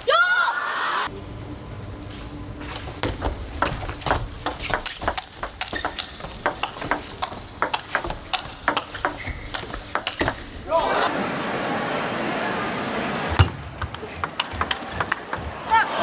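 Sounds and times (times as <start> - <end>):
table tennis ball clicks: 4.4 - 10.4, 13.4 - 15.5.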